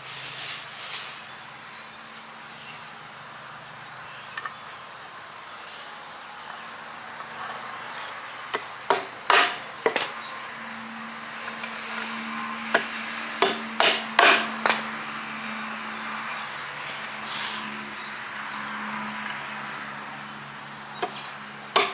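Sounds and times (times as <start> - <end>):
hammer striking nails: 8.9 - 10.1, 12.7 - 14.8.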